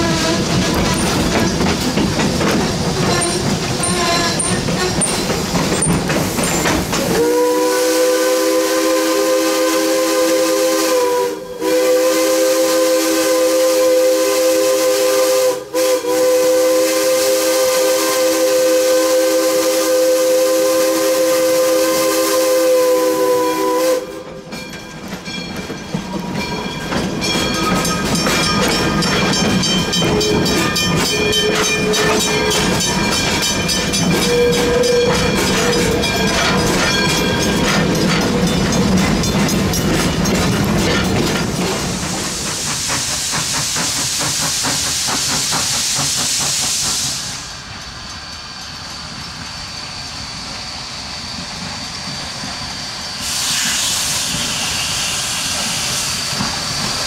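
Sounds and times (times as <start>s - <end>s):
locomotive rattling and clicking: 0.0s - 7.2s, 24.3s - 47.2s
three-chime steam whistle blast: 7.1s - 24.5s, 27.4s - 37.6s, 53.2s - 56.4s.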